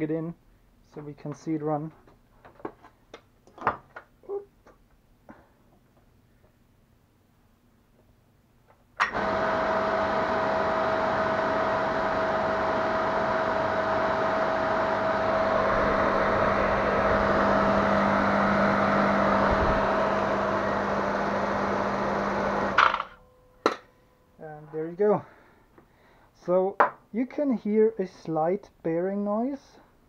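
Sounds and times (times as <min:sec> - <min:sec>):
electric motor humming: 0:09.1 - 0:23.2
cooling fan whoosh: 0:09.4 - 0:22.8.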